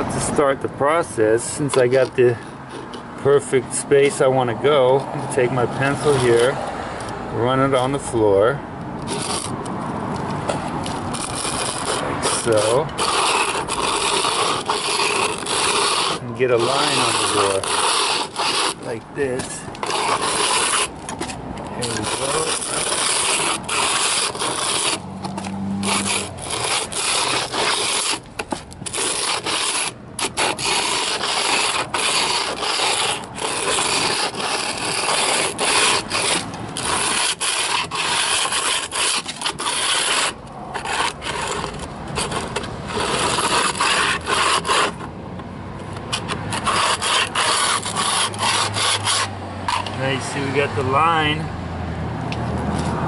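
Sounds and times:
plastic scraping on concrete floor: 0:09.0 - 0:45.2, 0:45.8 - 0:50.6.

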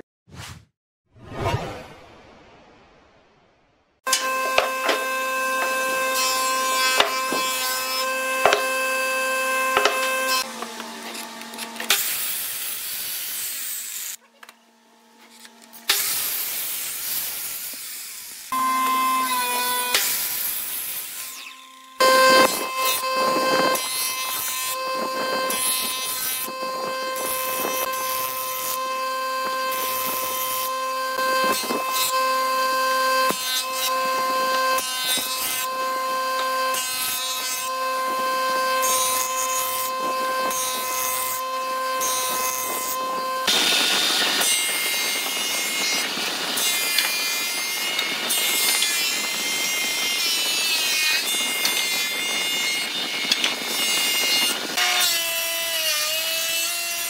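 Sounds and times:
jointer whining: 0:04.1 - 0:12.2, 0:21.3 - 0:50.6
thickness planer cutting wood: 0:04.1 - 0:14.2, 0:18.5 - 0:57.0.

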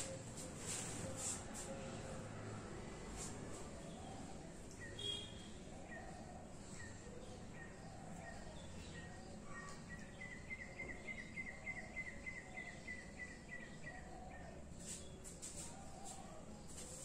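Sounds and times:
bird chirping: 0:03.8 - 0:16.8.

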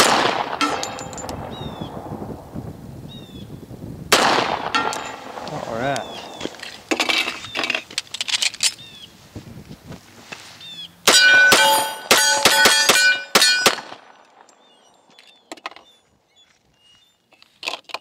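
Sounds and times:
steel targets clanging: 0:00.0 - 0:01.5, 0:04.5 - 0:08.8, 0:11.1 - 0:14.8
pistol shots: 0:00.0 - 0:02.1, 0:04.1 - 0:06.9, 0:11.1 - 0:14.8.

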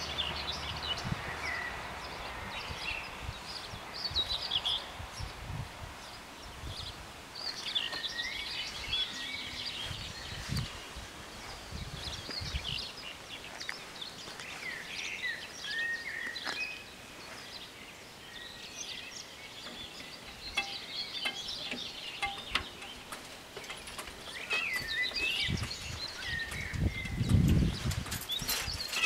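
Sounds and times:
rural background noise: 0:00.0 - 0:29.0
small birds chirping: 0:00.0 - 0:29.0.

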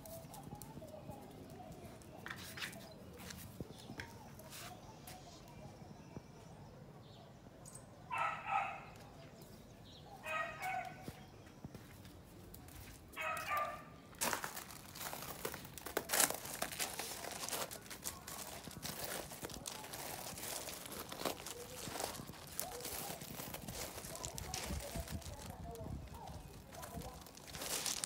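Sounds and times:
crunching and scraping on gravel: 0:00.0 - 0:05.6, 0:10.4 - 0:28.0.

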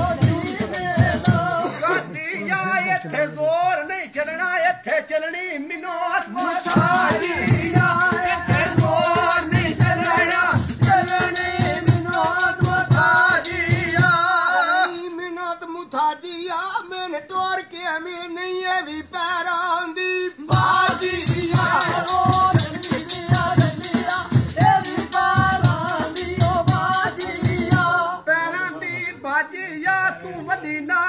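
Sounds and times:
steady drum beat: 0:00.0 - 0:01.8, 0:06.6 - 0:15.1, 0:20.5 - 0:28.2
person singing folk melody: 0:00.0 - 0:31.0.

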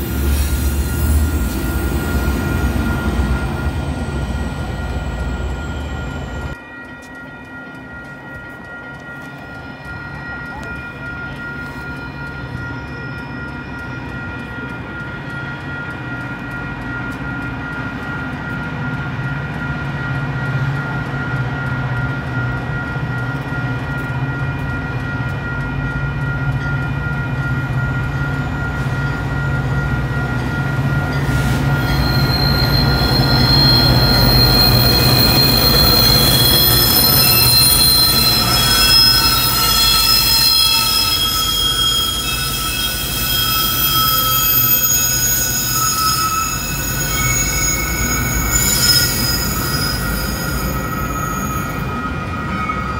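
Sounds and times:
steel wheels squealing: 0:00.0 - 0:06.6, 0:31.0 - 0:52.9
diesel train engine hum: 0:00.0 - 0:52.6.

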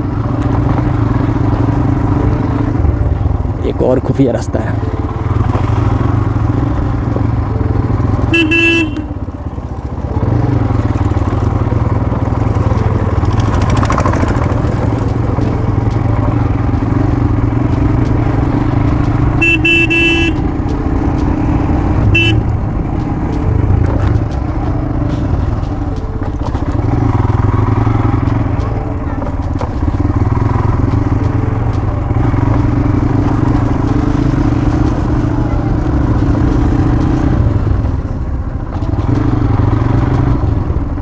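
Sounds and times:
motorcycle engine running: 0:00.0 - 0:41.0
horn honking: 0:07.2 - 0:10.8, 0:15.4 - 0:22.8.

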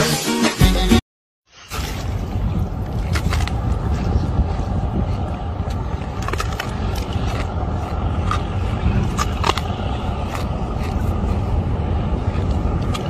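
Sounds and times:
wind buffeting microphone: 0:01.7 - 0:13.0
man chewing ice: 0:05.6 - 0:13.0.

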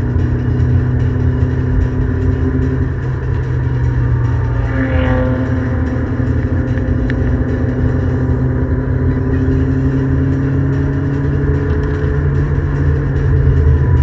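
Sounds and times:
car engine running at speed: 0:00.0 - 0:14.0.

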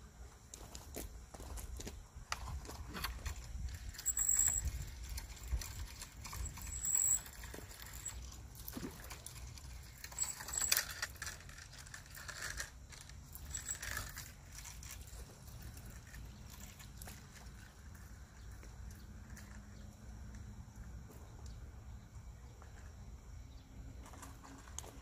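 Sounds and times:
fishing reel clicks and rustles: 0:00.5 - 0:20.5, 0:24.0 - 0:25.0
wind rumble on microphone: 0:01.5 - 0:07.9.

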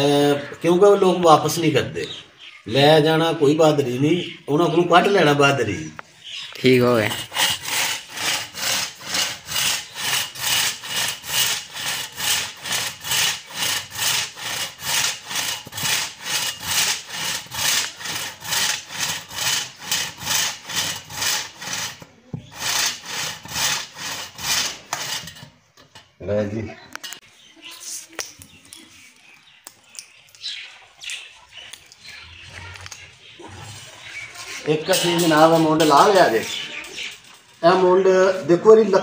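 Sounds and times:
hand saw cutting wood: 0:06.9 - 0:25.5.

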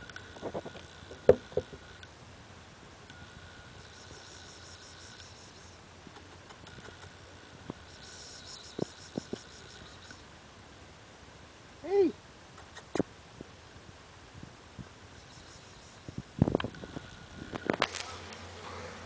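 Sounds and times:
high-pitched insect chirring: 0:03.4 - 0:05.8, 0:07.8 - 0:10.3, 0:15.2 - 0:16.2.

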